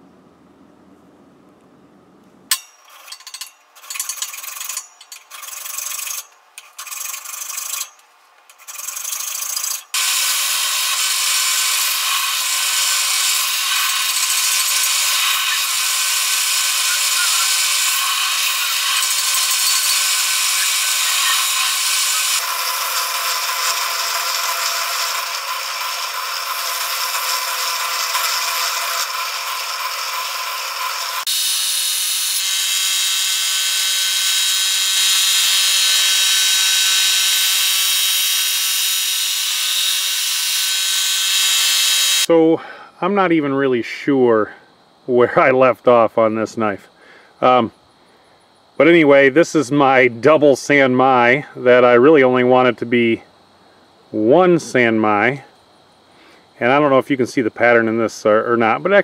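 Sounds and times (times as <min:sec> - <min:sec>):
file rasping on steel blade: 0:02.5 - 0:38.4
belt sander grinding: 0:02.5 - 0:42.3.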